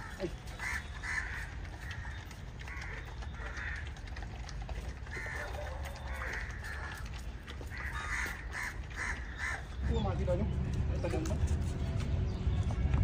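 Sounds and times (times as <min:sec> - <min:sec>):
crows cawing: 0:00.0 - 0:04.0, 0:05.1 - 0:10.0.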